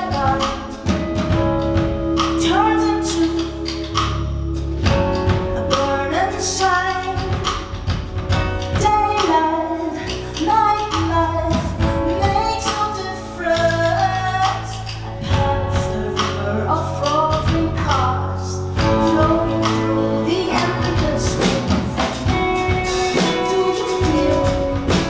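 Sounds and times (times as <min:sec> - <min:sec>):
woman singing: 0:00.0 - 0:01.6, 0:02.2 - 0:04.2, 0:05.2 - 0:25.0
low bass notes: 0:00.0 - 0:25.0
drum and cymbal hits: 0:18.8 - 0:25.0.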